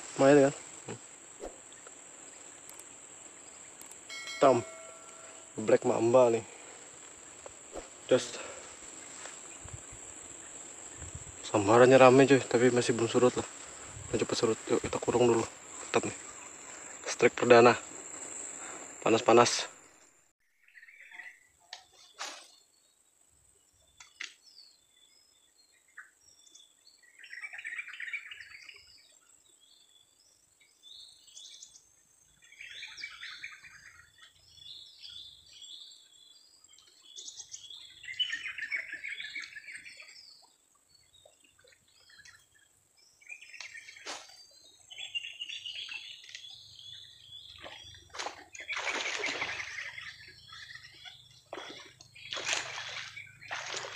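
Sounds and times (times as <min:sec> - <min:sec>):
small birds chirping: 0:00.0 - 0:19.8, 0:20.6 - 0:53.9
high-pitched insect drone: 0:04.3 - 0:06.3.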